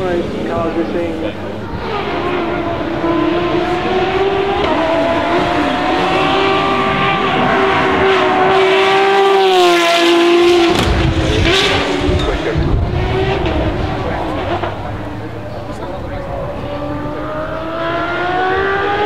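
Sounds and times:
car engine passing at speed: 0.0s - 19.0s.

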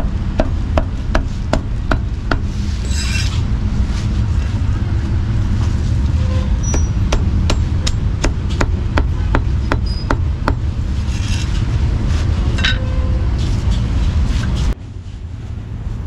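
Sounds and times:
motorbike traffic rumble: 0.0s - 16.0s
soft scrapes and rustles: 2.5s - 6.5s, 11.0s - 12.6s, 13.3s - 16.0s.

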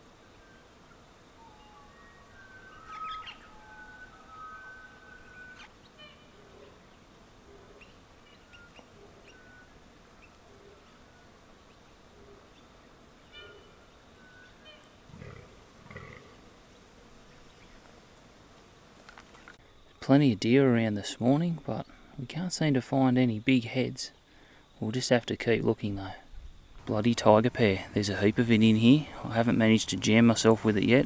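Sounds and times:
bird whistling: 1.4s - 6.3s, 7.8s - 9.7s
birds chirping: 1.5s - 17.9s
deer groaning: 15.1s - 16.5s.

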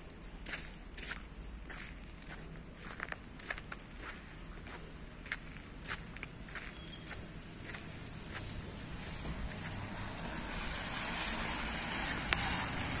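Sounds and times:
footsteps on wet cobblestones: 0.1s - 10.4s
tyres hissing on wet road: 7.9s - 13.0s.

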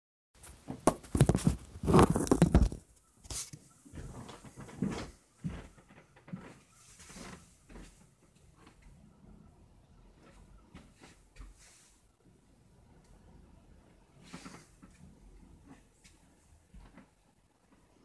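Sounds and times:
phone handling rubbing and knocking: 0.5s - 3.4s.

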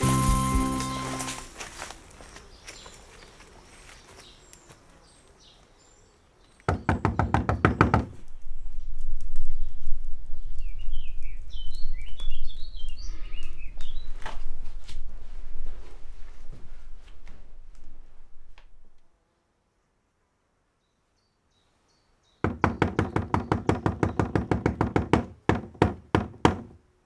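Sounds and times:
birds chirping: 0.0s - 8.9s, 21.6s - 24.8s.

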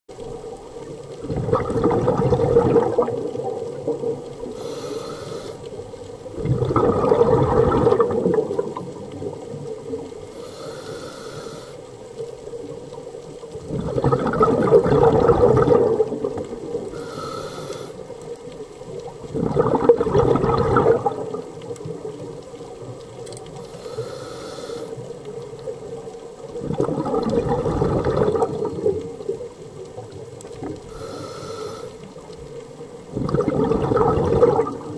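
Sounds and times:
underwater exhaled bubble bursts: 0.2s - 10.6s, 12.5s - 34.9s
regulator inhalation hiss: 4.5s - 5.7s, 10.3s - 11.9s, 16.9s - 18.1s, 23.7s - 25.1s, 30.9s - 32.2s.

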